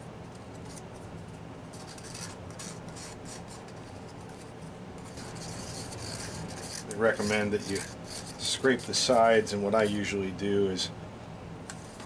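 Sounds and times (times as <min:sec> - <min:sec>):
stick scraping inside cup: 0:01.8 - 0:09.2.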